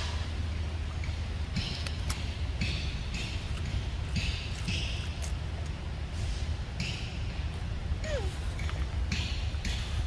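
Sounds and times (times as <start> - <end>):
monkey crunching fruit: 3.5 - 5.8.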